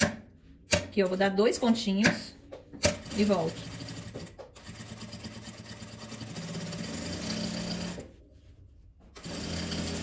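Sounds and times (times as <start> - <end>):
sewing machine stitching fabric: 2.8 - 8.1, 9.2 - 10.0.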